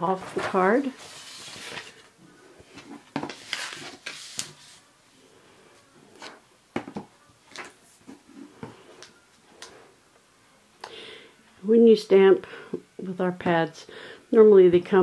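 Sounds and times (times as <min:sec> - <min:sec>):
paper rustling on cutting mat: 0:00.1 - 0:02.1, 0:02.7 - 0:04.8.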